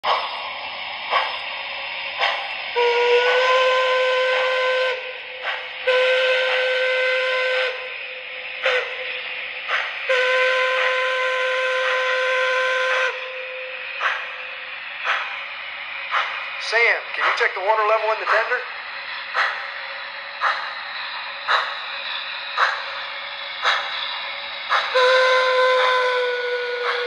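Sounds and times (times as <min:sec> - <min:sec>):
steam hissing: 0:00.0 - 0:27.0
short steam puffs: 0:00.1 - 0:27.0
steam whistle blasts: 0:02.8 - 0:05.2, 0:05.8 - 0:07.9, 0:10.1 - 0:13.8, 0:24.9 - 0:27.0.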